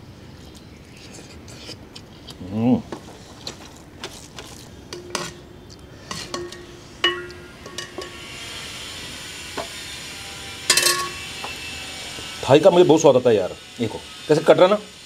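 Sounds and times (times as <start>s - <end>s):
metal ladle clinking on pot: 4.9s - 5.5s, 6.1s - 8.2s, 10.7s - 11.3s.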